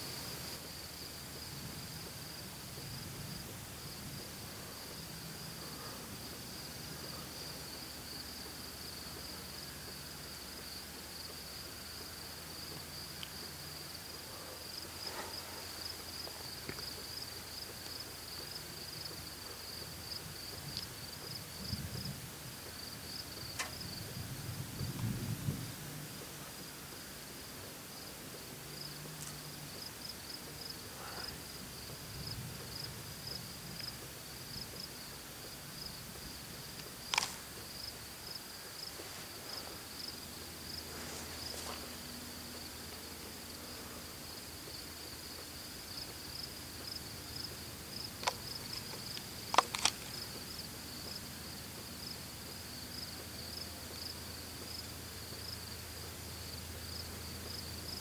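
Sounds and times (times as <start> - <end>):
insects trilling: 0.0 - 58.0
sharp clicks: 36.8 - 37.6, 48.2 - 50.2.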